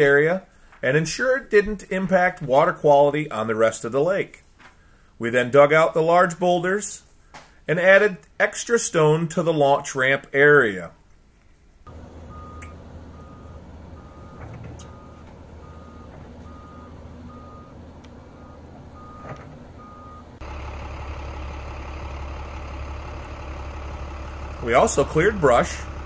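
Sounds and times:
warning alarm beeping: 11.9s - 20.7s
excavator diesel engine: 11.9s - 26.0s.

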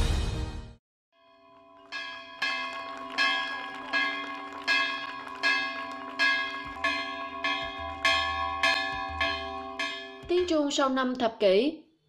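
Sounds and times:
church bell ringing: 1.2s - 10.7s.

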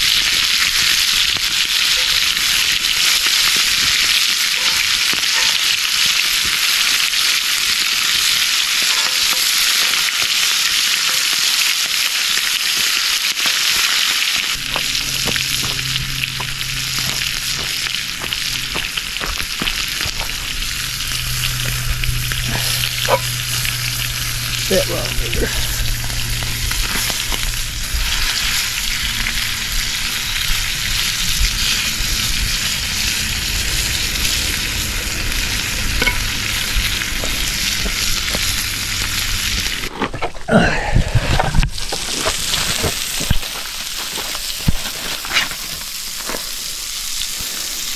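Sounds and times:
meat sizzling in a skillet: 0.0s - 39.9s, 41.8s - 47.9s
fork and knife scraping pan: 22.4s - 23.6s, 36.0s - 36.3s.

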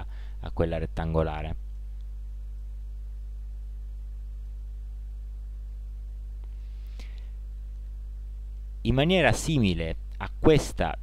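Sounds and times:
low electrical mains hum: 0.0s - 11.0s.

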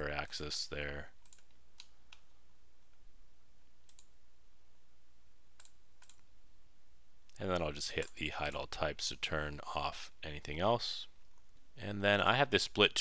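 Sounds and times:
faint low hum: 0.0s - 13.0s
computer mouse clicking: 1.2s - 2.3s, 3.8s - 4.1s, 5.6s - 6.3s.

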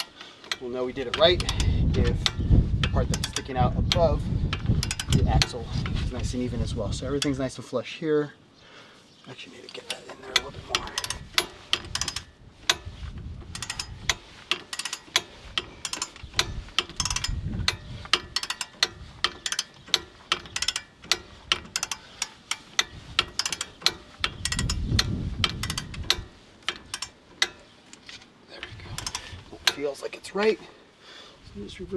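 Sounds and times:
ratchet wrench clicking: 0.0s - 5.6s, 10.3s - 30.0s
low rumbles: 10.1s - 21.9s, 22.8s - 27.7s.

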